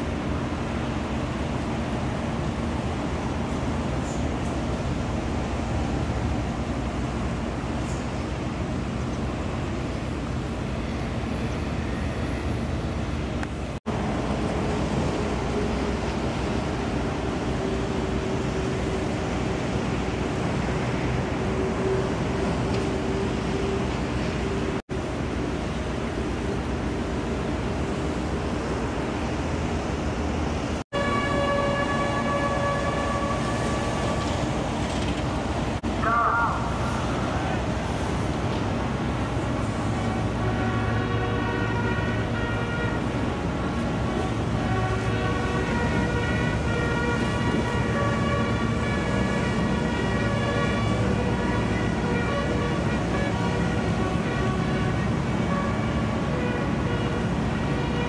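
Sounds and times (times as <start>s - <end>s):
low harbour rumble: 0.0s - 58.0s
wind: 0.0s - 58.0s
bugle long held note: 30.9s - 34.4s, 35.9s - 37.9s, 40.0s - 43.4s, 44.1s - 58.0s.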